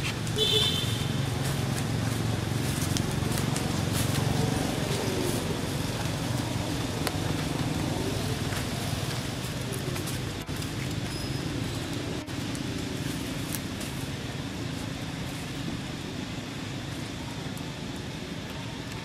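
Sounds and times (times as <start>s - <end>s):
faint ticks and rustles: 0.0s - 16.0s
outdoor background rumble: 0.0s - 19.0s.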